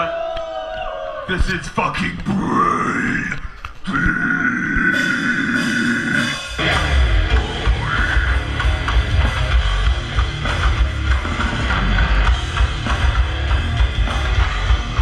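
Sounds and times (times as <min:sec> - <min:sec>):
vocal growl: 0:02.3 - 0:06.6
death metal band playing: 0:03.9 - 0:15.0.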